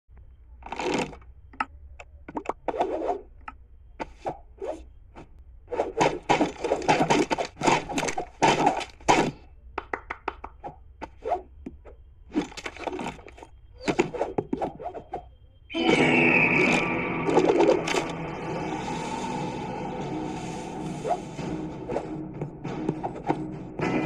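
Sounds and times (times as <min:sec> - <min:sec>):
cartoon clicks thuds and scrapes: 0:00.6 - 0:09.4.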